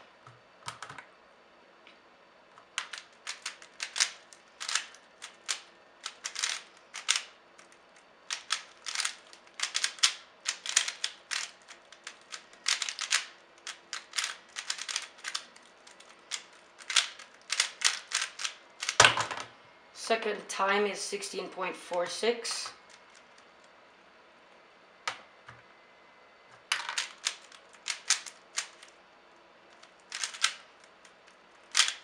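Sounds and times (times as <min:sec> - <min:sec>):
plastic cube clicking: 0:02.8 - 0:07.7, 0:08.3 - 0:19.2, 0:26.8 - 0:28.9, 0:29.8 - 0:30.6, 0:31.6 - 0:32.0.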